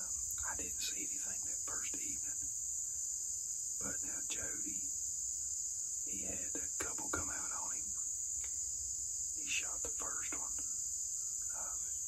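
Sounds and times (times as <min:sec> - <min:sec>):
insects droning: 0:00.0 - 0:12.0
man's voice: 0:06.1 - 0:07.9, 0:09.4 - 0:10.6.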